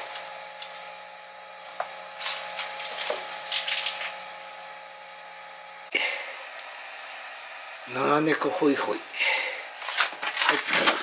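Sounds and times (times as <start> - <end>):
low hum: 0.0 - 10.4
rustling and scraping: 2.2 - 4.2, 9.8 - 11.0.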